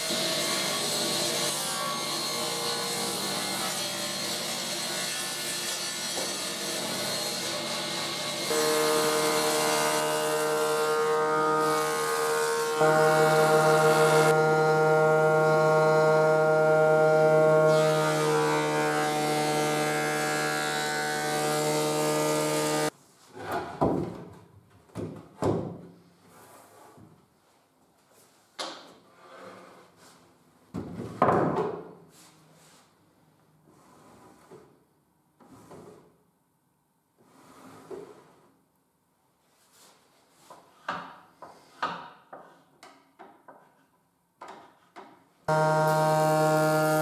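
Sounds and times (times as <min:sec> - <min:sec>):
panel saw cutting wood: 0:00.0 - 0:22.9, 0:45.5 - 0:47.0
jointer planing with whine: 0:08.5 - 0:22.9, 0:45.5 - 0:47.0.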